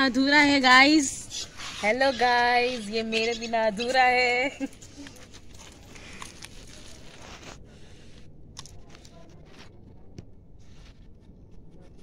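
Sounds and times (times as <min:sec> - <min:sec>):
plastic film peeling crinkle: 0:05.0 - 0:07.7.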